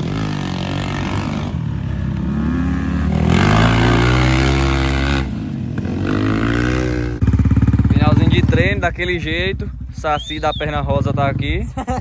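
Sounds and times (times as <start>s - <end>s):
dirt bike engine revving: 0.0s - 9.4s.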